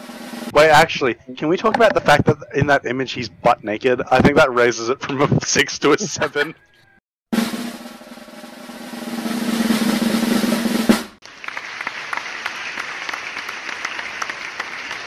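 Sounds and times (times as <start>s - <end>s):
drum roll with final hit: 0.0s - 0.5s, 7.3s - 11.2s.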